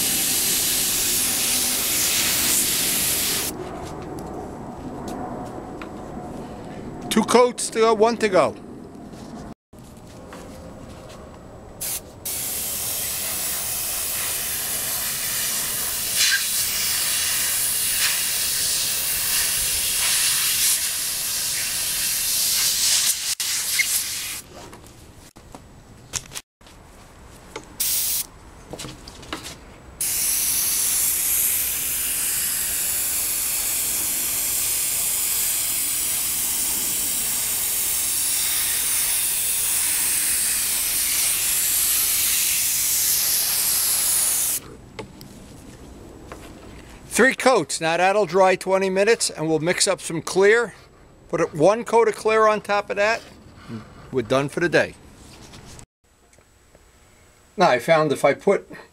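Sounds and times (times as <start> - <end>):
airbrush spraying hiss: 0.0 - 3.5, 11.8 - 24.4, 27.8 - 28.2, 30.0 - 44.6.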